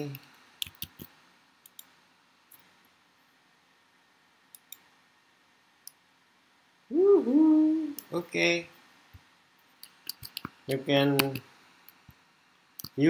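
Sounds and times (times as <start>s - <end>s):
computer mouse clicks: 0.1s - 2.7s, 4.5s - 4.9s, 9.8s - 10.6s.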